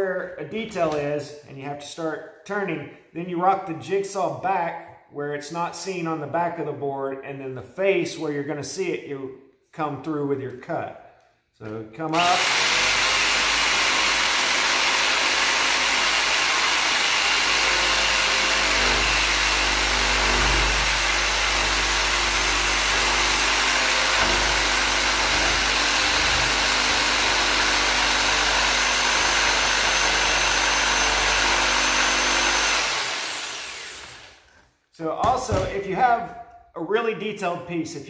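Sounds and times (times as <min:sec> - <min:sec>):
jigsaw cutting wood: 0:12.1 - 0:34.5.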